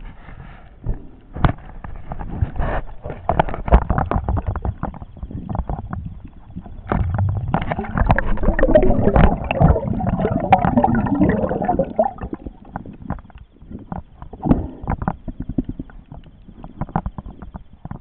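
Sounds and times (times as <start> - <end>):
underwater clicks and crackles: 0.0 - 18.0
bubbling gurgle: 3.3 - 13.3.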